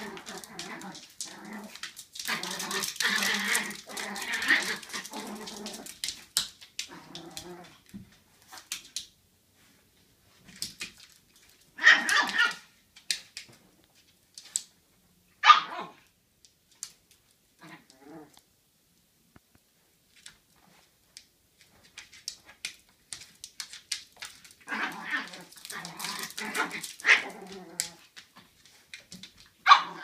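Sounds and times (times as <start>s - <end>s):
puppy barking: 15.4s - 16.0s, 29.6s - 30.0s.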